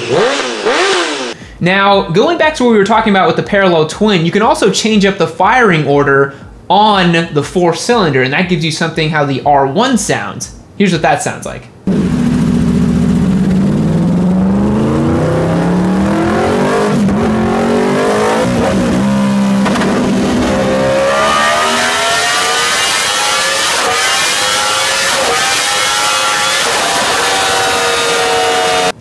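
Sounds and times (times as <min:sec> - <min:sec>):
motorcycle engine accelerating: 0:00.0 - 0:01.4, 0:11.9 - 0:29.0.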